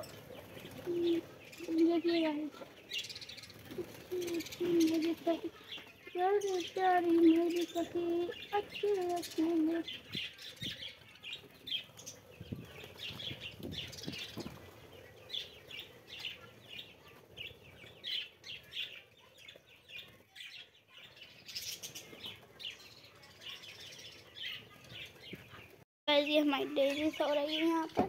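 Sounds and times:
bird wing flaps: 0:00.0 - 0:01.3.

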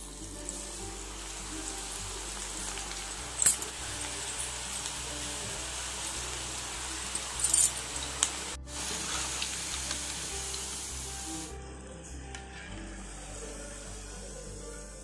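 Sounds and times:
deep-frying sizzle in oil: 0:00.0 - 0:11.5
background music: 0:00.0 - 0:15.0.

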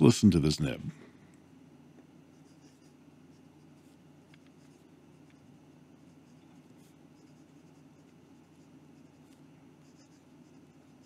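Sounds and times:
low steady hum: 0:00.0 - 0:11.0
fountain pen scratching on paper: 0:02.2 - 0:11.0.

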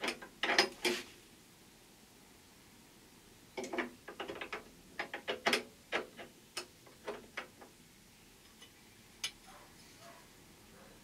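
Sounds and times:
metal clicks and clatters: 0:00.0 - 0:01.0, 0:03.6 - 0:07.7.

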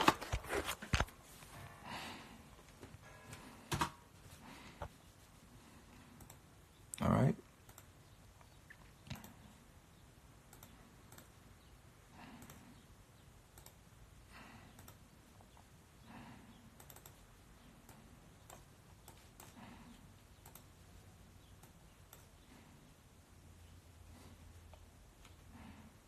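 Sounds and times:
faint clicks: 0:05.9 - 0:07.0, 0:07.6 - 0:09.5, 0:10.5 - 0:11.4, 0:13.5 - 0:13.8, 0:14.7 - 0:15.7, 0:16.8 - 0:17.2, 0:20.3 - 0:20.8.

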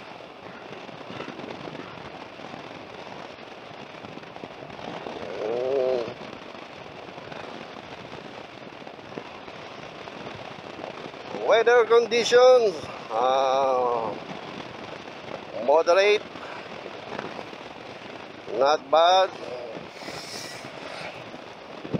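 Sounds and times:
wind rushing on microphone: 0:00.0 - 0:21.9
motorcycle road noise: 0:04.7 - 0:07.8, 0:18.5 - 0:21.9.

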